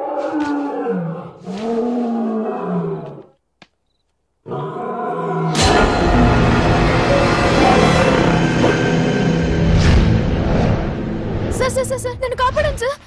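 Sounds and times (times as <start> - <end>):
tiger roaring: 0.0 - 3.3, 4.4 - 5.7
eerie music: 5.3 - 12.8.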